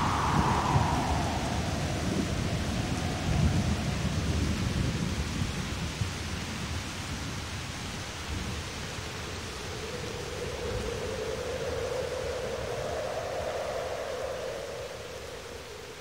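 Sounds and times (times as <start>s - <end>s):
thunder rumbling: 0.0s - 5.6s
rain hissing: 0.0s - 16.0s.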